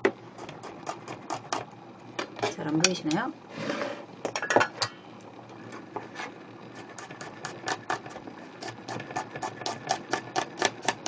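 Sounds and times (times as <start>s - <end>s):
knife chopping on plastic board: 8.6s - 11.0s.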